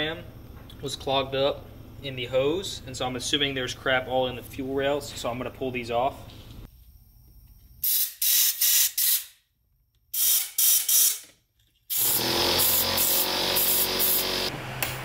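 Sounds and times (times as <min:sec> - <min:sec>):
pressurised spray hissing: 0:11.9 - 0:14.5.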